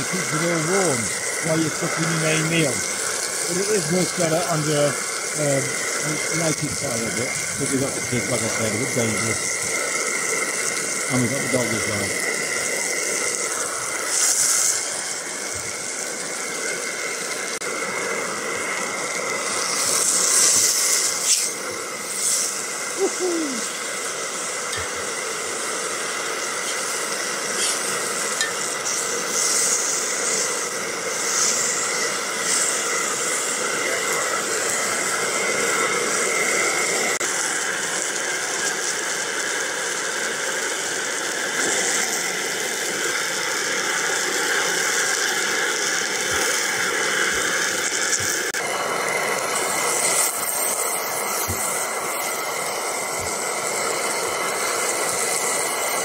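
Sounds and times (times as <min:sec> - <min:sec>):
steak sizzling in a pan: 0:00.0 - 0:56.0.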